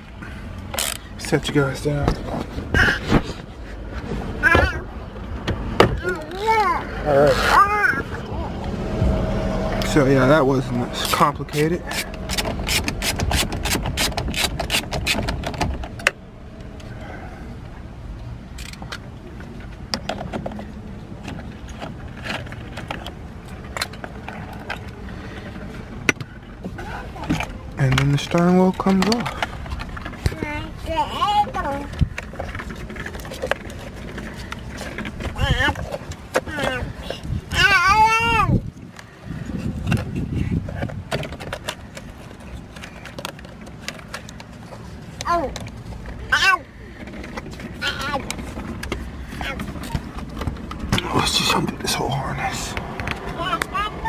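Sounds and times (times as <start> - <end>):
steady low rumble: 7.7 - 28.0
plastic and metal parts clicking: 39.8 - 46.2.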